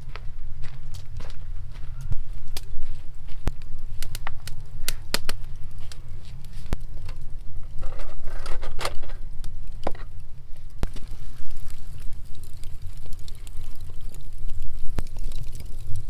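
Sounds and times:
tray scraping on gravel: 7.7 - 9.2.

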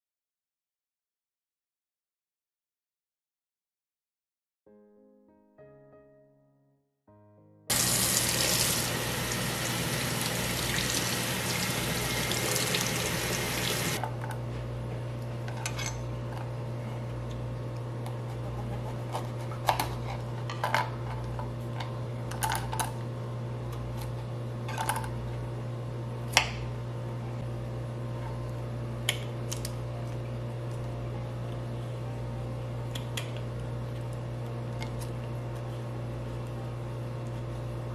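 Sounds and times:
tap water running: 7.7 - 14.0.

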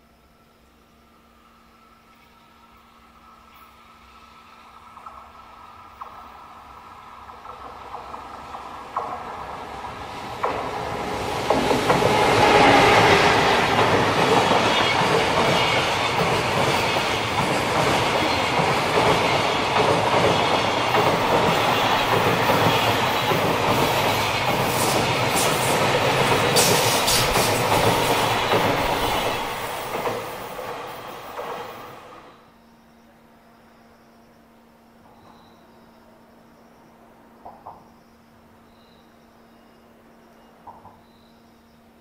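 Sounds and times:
freight train rumbling past: 1.2 - 32.5.

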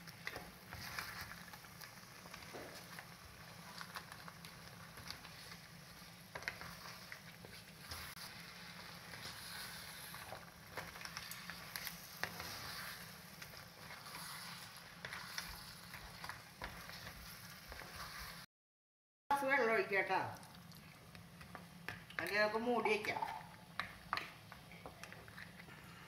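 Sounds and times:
food sizzling in a pan: 0.0 - 18.5
spatula scraping and knocking: 0.2 - 18.5, 23.7 - 26.0.

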